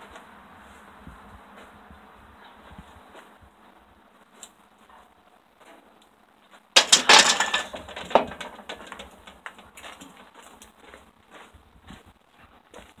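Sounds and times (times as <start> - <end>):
barbell clanking into metal rack: 6.8 - 9.2.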